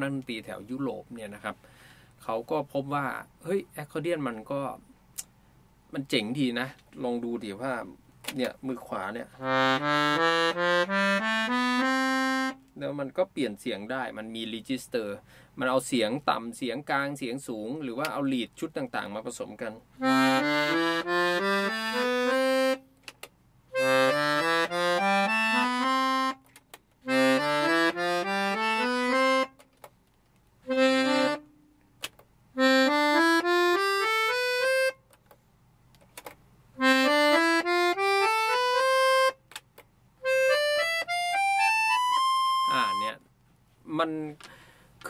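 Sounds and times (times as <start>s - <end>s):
accordion playing scale runs: 9.4s - 12.6s, 20.0s - 22.8s, 23.8s - 26.4s, 27.1s - 29.5s, 30.7s - 31.4s, 32.6s - 35.0s, 36.8s - 39.3s, 40.2s - 43.1s.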